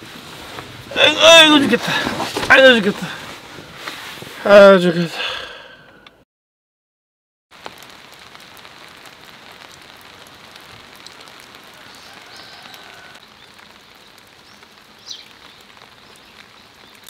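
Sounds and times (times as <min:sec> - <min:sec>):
steady rain falling: 0:00.0 - 0:05.3, 0:07.5 - 0:17.0
raindrops ticking on a surface: 0:07.5 - 0:17.0.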